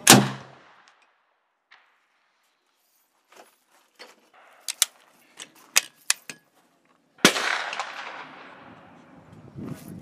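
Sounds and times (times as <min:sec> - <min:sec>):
gunshot with echo: 0:07.2 - 0:08.6.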